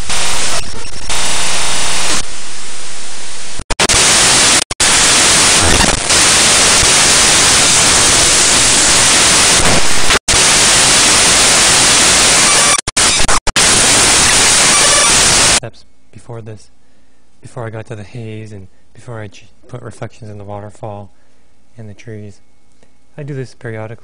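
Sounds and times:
digital static hiss: 0.0 - 15.6.

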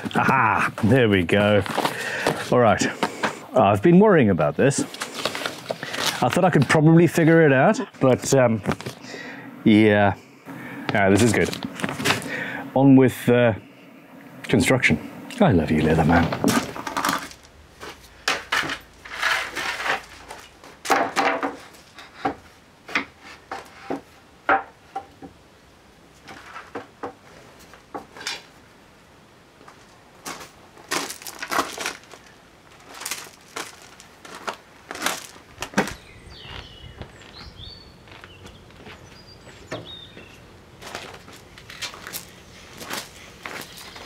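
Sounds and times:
wooden planks knocking: 19.8 - 25.4.

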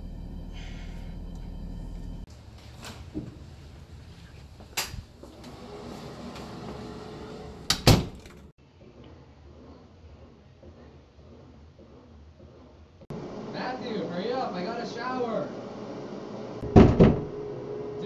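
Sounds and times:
low hum inside a car: 0.0 - 2.3.

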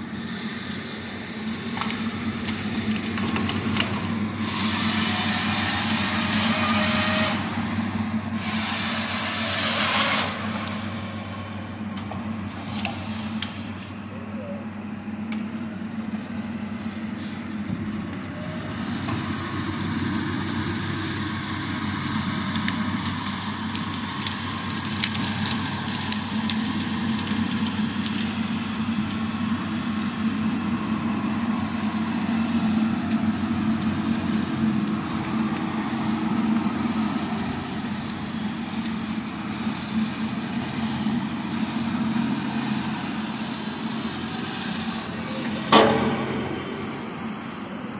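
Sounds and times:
diesel engine under load: 0.0 - 47.9
wood cracking and snapping: 1.7 - 4.2, 22.4 - 28.4.

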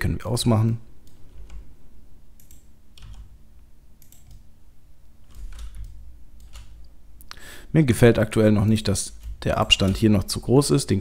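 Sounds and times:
keyboard key presses: 5.3 - 6.8.

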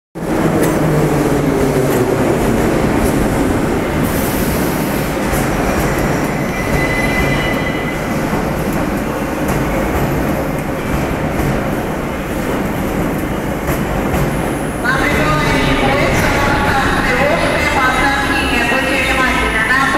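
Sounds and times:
train wheels rumbling on rails: 0.2 - 19.9
high wheel squeal: 6.4 - 8.0.

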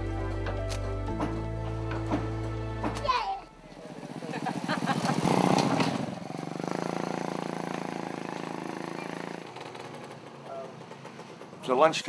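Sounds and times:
small motorcycle engine passing: 3.8 - 12.0.

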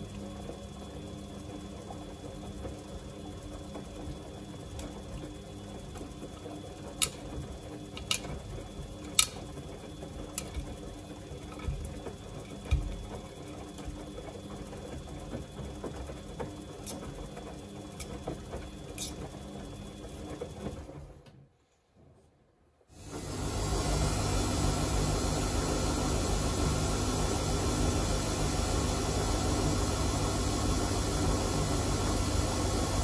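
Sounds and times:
washing machine drum turning: 1.8 - 20.7.

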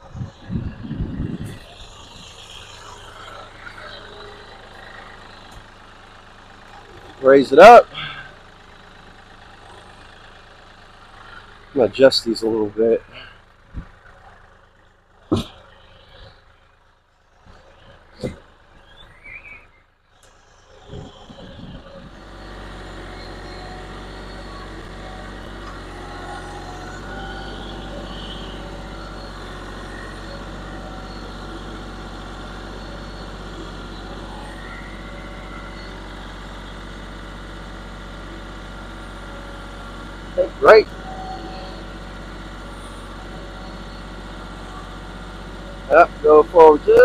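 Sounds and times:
tractor diesel engine running: 0.0 - 47.0.

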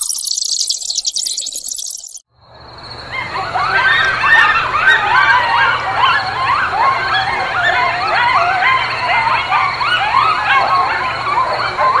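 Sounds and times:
chorus of whining animal calls: 3.4 - 12.0.

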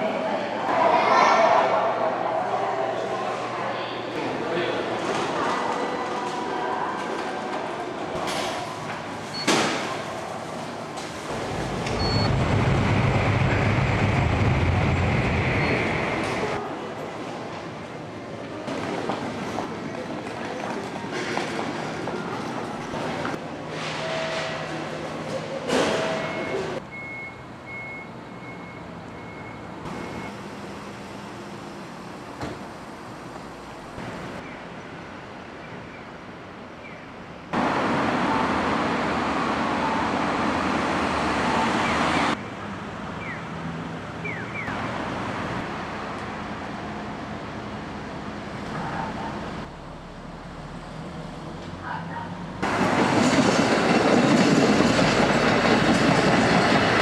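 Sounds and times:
street traffic noise: 0.0 - 57.0
electric train passing rumble: 10.7 - 18.4, 52.4 - 57.0.

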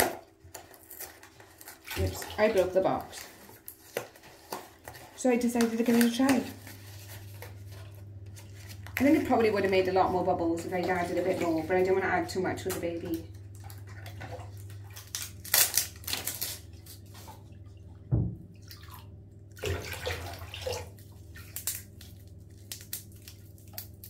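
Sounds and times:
bath water splashing: 13.5 - 15.6, 16.8 - 22.2
knock: 18.1 - 18.4.

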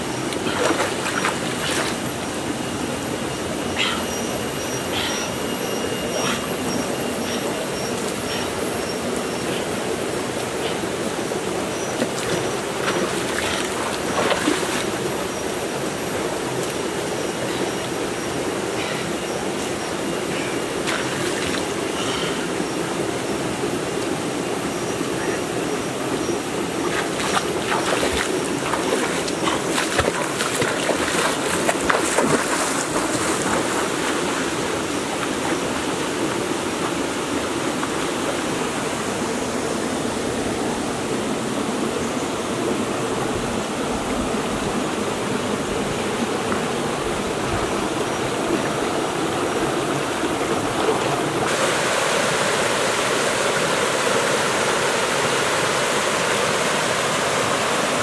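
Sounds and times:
water splashing: 0.0 - 2.6, 11.8 - 15.3, 20.4 - 22.3, 26.7 - 38.7
small waterfall cascade: 0.0 - 58.0
stream flowing over rocks: 0.0 - 58.0.

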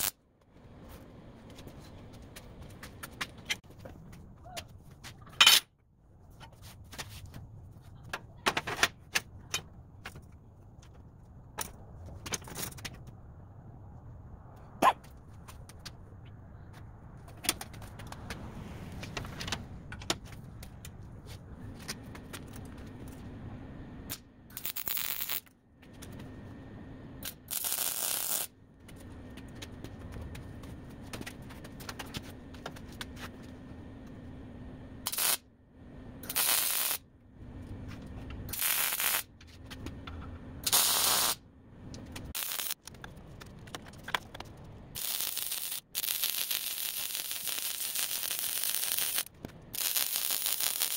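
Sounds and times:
steady low hum: 9.1 - 45.2
arc welding crackling hiss: 24.5 - 25.4, 27.2 - 28.5, 35.1 - 35.4, 36.2 - 37.0, 38.5 - 39.3, 40.6 - 41.4, 42.4 - 42.8, 45.0 - 50.9.

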